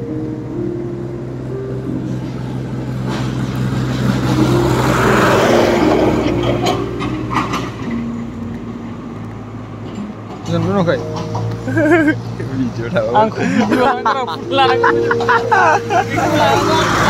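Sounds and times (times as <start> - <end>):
background music with held notes: 0.0 - 17.0
road vehicle passing: 0.0 - 17.0.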